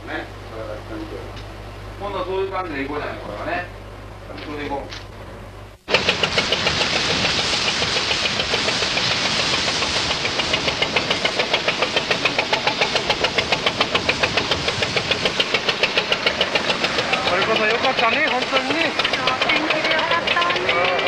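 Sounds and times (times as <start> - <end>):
rush of bow wash: 5.9 - 19.8
boat engine chugging: 5.9 - 21.0.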